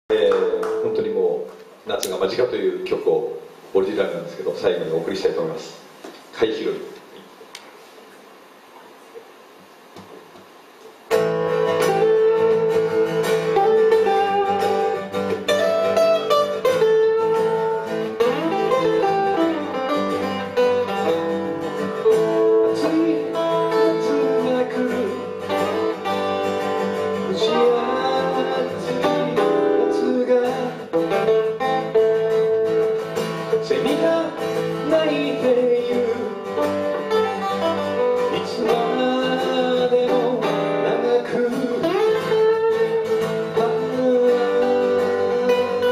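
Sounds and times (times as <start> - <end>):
live band playing: 11.1 - 45.9
man singing: 22.2 - 25.8, 27.2 - 31.3, 33.5 - 37.0, 38.3 - 45.9.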